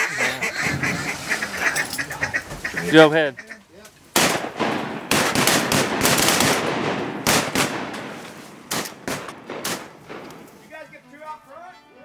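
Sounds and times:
shotguns firing: 4.1s - 10.7s.

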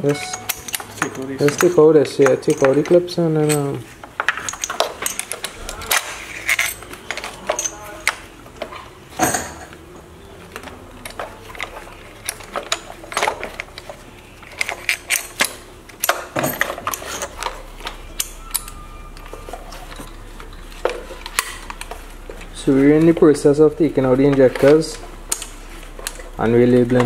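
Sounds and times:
metal clicks and clinks: 0.0s - 8.2s.

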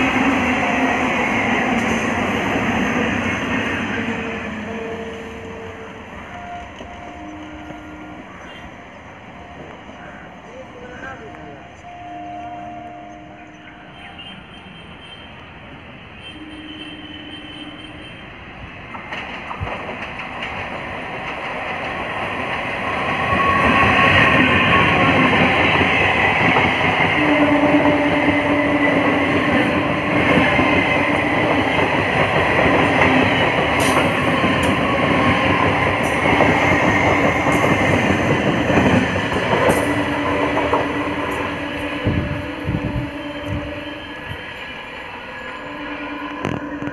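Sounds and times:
train wheels clattering over rails: 18.8s - 43.6s.

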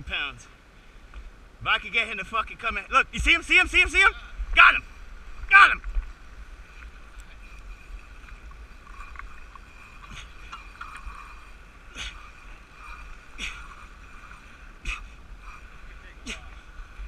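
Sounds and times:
water splashes: 3.2s - 17.0s
sea washing against rocks: 3.9s - 17.0s.

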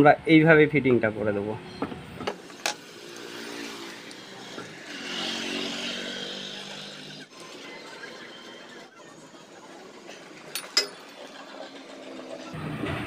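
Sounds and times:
engine running: 2.6s - 13.0s.

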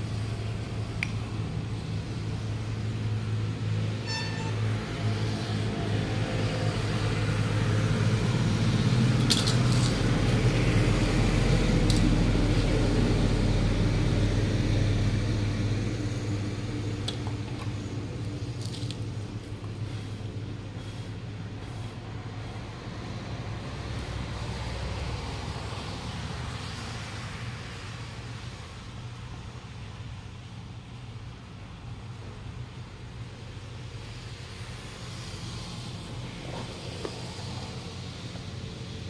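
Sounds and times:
vehicle engine humming: 0.0s - 39.0s
light sharp clicks: 1.0s - 1.2s.

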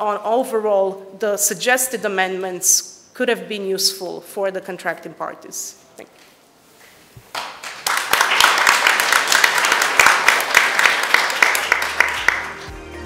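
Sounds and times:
audience applauding: 7.3s - 12.8s.

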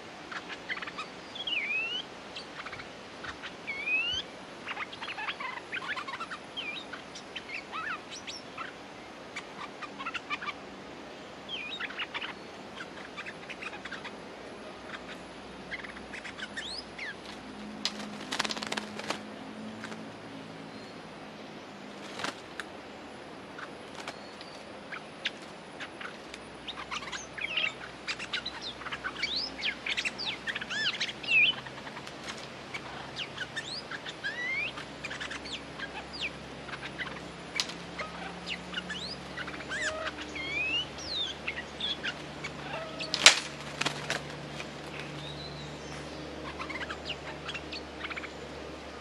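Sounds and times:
bulbuls whistling calls: 0.3s - 8.8s, 11.5s - 17.2s, 23.6s - 32.1s, 32.7s - 49.0s.

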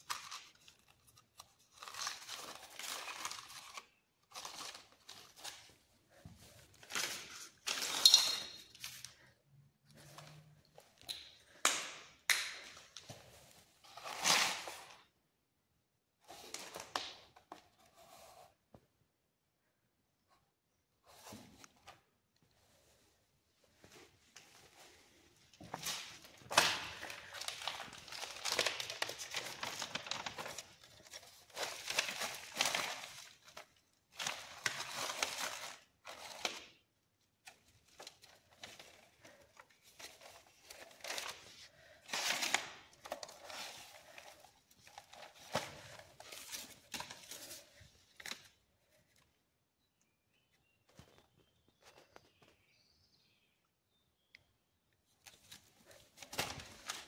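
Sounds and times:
paper rustling and crinkling: 0.0s - 9.3s, 23.8s - 48.6s, 55.1s - 57.0s.

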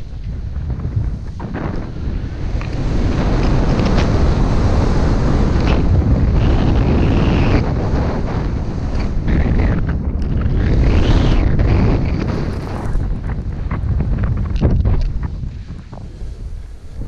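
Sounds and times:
skis sliding over snow: 0.0s - 17.0s
wind buffeting microphone: 0.0s - 17.0s.

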